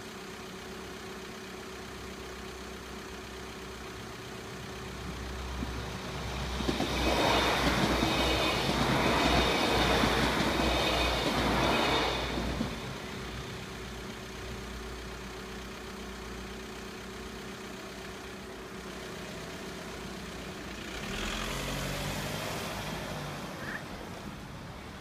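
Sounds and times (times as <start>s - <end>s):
car engine idling and pulling away: 0.0s - 25.0s
passing train: 4.5s - 15.4s, 17.8s - 25.0s.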